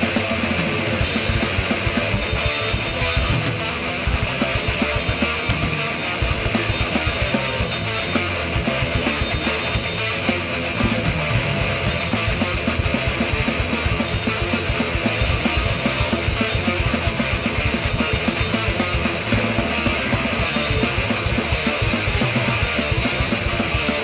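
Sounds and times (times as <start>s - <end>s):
distorted electric guitar riffing: 0.0s - 24.0s
fast dense drumming: 0.0s - 24.0s.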